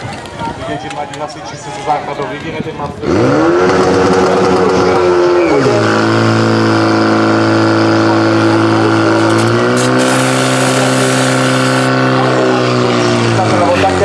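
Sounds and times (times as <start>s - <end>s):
pump engine running hard: 3.0s - 14.0s.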